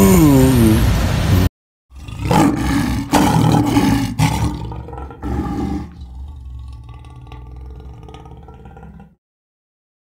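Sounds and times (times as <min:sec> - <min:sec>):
lioness roaring: 0:01.9 - 0:09.2.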